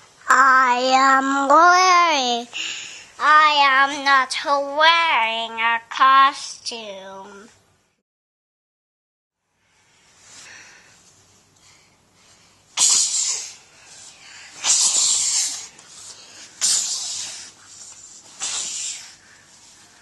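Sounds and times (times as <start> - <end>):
child making hissing mouth noises: 12.8 - 19.3.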